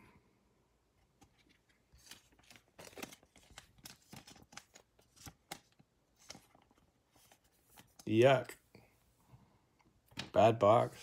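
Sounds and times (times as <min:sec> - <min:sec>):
trading cards rustling: 0:01.0 - 0:08.6.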